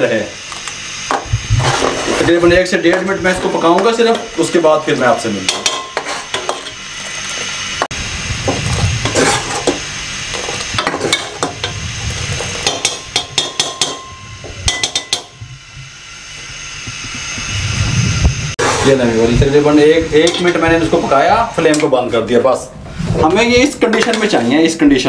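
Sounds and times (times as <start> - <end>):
metal ladle clinking and scraping pan: 5.5 - 6.8, 9.0 - 11.8.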